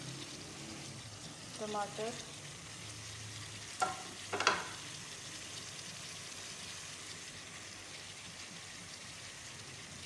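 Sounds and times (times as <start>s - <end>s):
food sizzling in oil: 0.0s - 10.0s.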